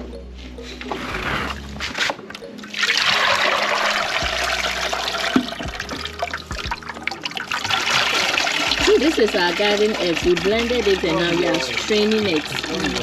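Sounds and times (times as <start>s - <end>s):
liquid trickling and splashing: 2.6s - 13.0s.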